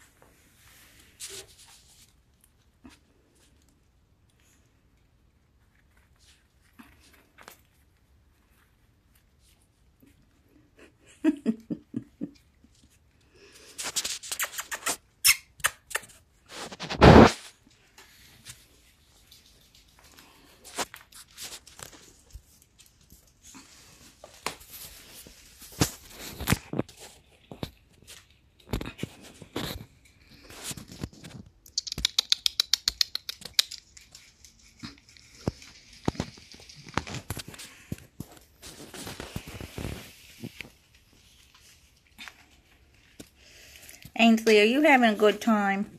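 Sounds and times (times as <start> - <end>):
puppies rustling and scuffling: 0.0 - 10.9, 12.2 - 15.2, 16.0 - 45.8
puppy squeaks: 14.3 - 16.1
puppy crunching dry kibble: 26.2 - 40.0
sharp clicks: 31.6 - 33.8
puppies shuffling on bedding: 35.4 - 43.2.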